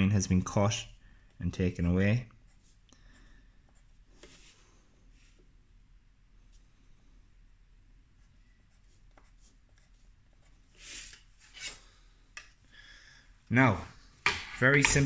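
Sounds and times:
pencil scratching on paper: 2.3 - 4.5, 8.2 - 11.7.

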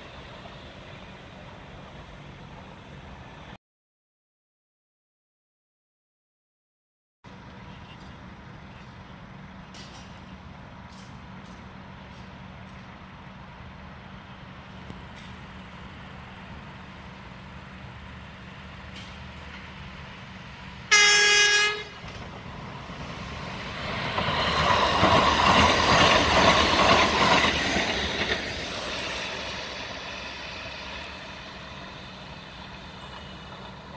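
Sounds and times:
train wheels on rails: 7.3 - 33.9
train horn blast: 20.9 - 22.1.

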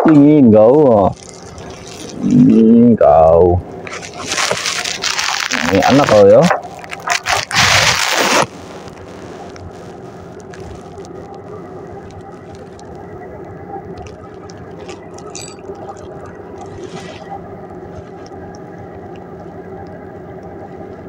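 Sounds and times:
engine drone: 0.0 - 21.0
microphone handling noise: 3.7 - 11.4.

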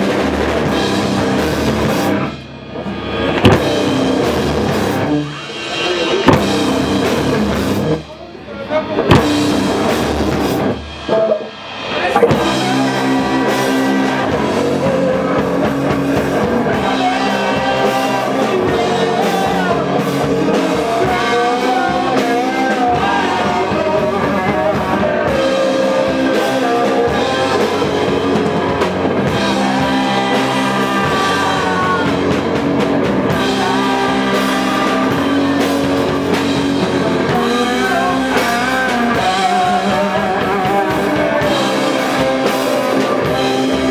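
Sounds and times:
bass guitar: 0.0 - 43.9
drum kit: 0.0 - 43.9
electric guitar: 0.0 - 43.9
person singing: 11.1 - 43.9.

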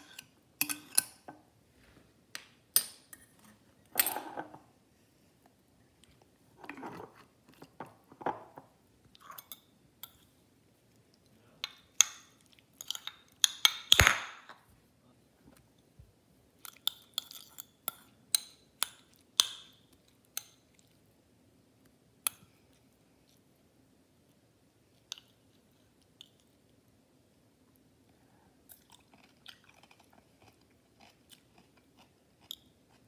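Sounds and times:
fork clinking against ceramic bowl: 0.0 - 1.3.

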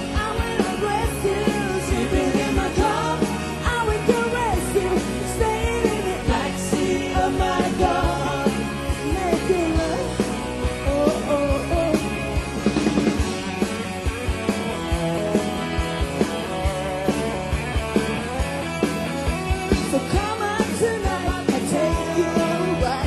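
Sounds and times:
electric guitars: 0.0 - 23.0
steady drum beat: 0.0 - 23.0
woman singing: 0.1 - 7.8, 10.8 - 12.0, 19.9 - 23.0.

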